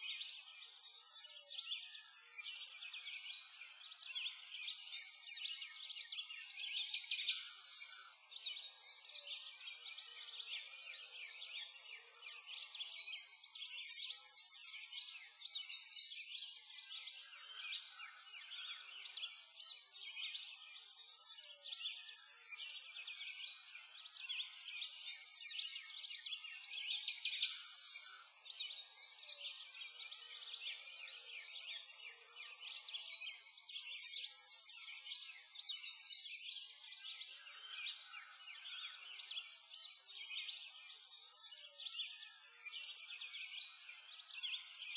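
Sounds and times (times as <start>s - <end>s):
small birds chirping: 0.0s - 44.9s.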